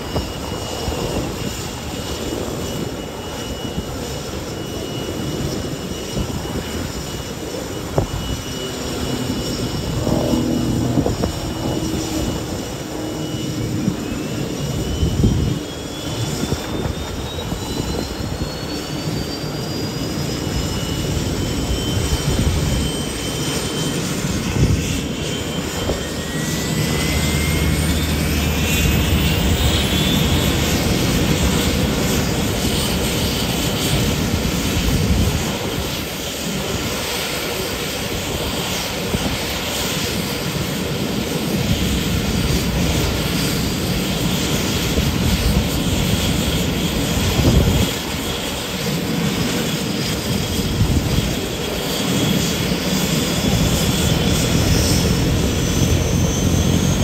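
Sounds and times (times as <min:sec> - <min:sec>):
turboprop engines whining: 0:00.0 - 0:57.0
thin rising whine: 0:02.9 - 0:32.7.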